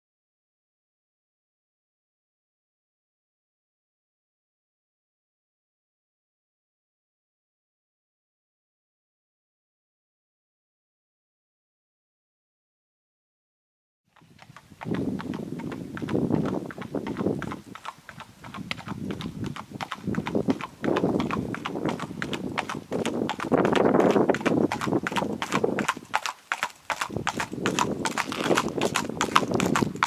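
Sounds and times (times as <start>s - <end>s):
hooves clip-clopping on pavement: 14.2s - 30.0s.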